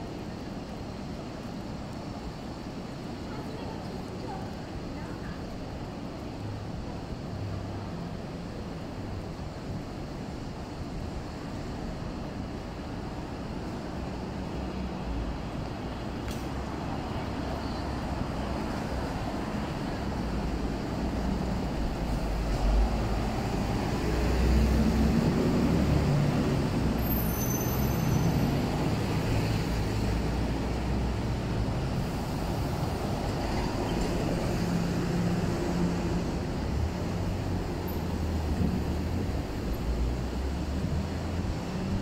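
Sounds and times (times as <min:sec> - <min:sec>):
street traffic: 0:00.0 - 0:42.0
short high squeal: 0:27.0 - 0:28.5.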